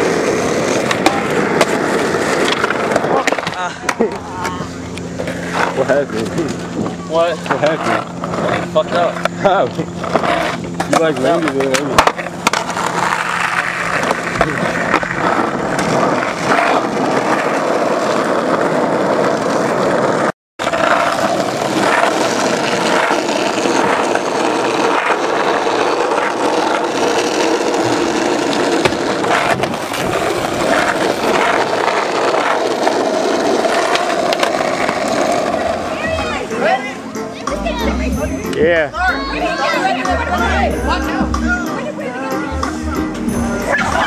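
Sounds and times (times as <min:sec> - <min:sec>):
skateboard wheels rolling on asphalt: 0:00.0 - 0:38.1
skateboard knocks and clacks: 0:10.1 - 0:35.8.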